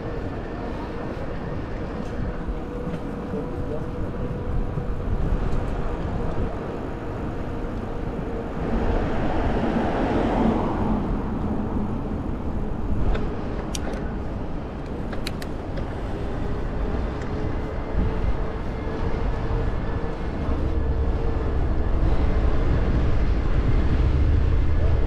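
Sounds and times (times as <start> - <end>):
wind and tyre rumble: 0.0 - 25.0
car passing: 8.0 - 13.6.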